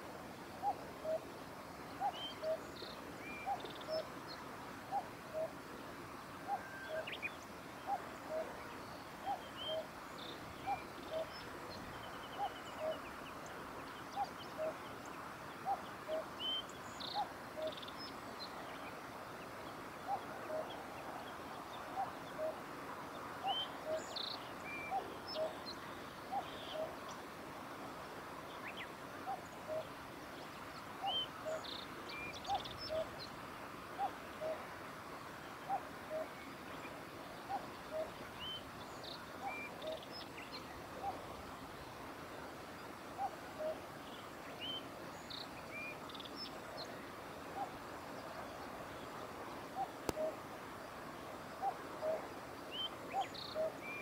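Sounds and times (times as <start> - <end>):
cuckoo calling: 0.6 - 1.2, 2.0 - 2.7, 3.3 - 4.1, 4.9 - 5.6, 6.4 - 7.2, 7.9 - 8.6, 9.2 - 9.9, 10.6 - 11.4, 12.3 - 13.0, 20.1 - 20.9, 24.8 - 25.6, 29.2 - 29.9, 32.3 - 33.2, 34.0 - 34.6, 35.7 - 36.4, 37.5 - 38.6, 39.3 - 40.1, 40.9 - 41.3, 43.2 - 43.9, 49.8 - 50.5, 51.6 - 54.0.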